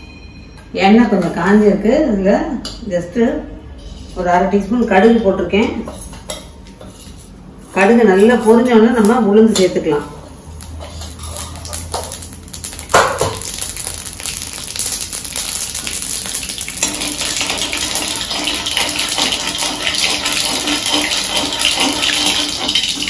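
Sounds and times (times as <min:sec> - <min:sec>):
mustard seeds spluttering in hot oil: 0:10.3 - 0:23.0.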